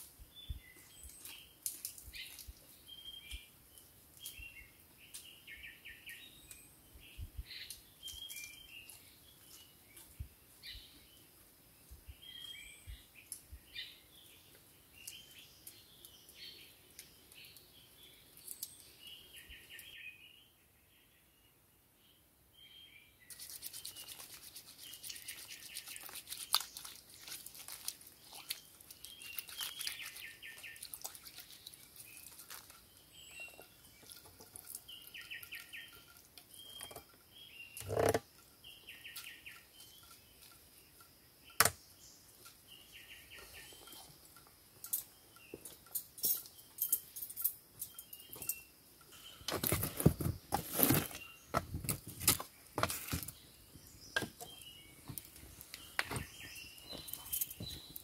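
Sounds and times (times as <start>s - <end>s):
bird chirps: 0.4s - 3.6s, 4.2s - 11.2s, 12.1s - 27.5s, 28.2s - 51.6s, 52.6s - 58.0s
campfire crackling and clatter: 24.0s - 36.5s
clicks and scraping: 37.8s - 38.5s, 49.5s - 53.4s.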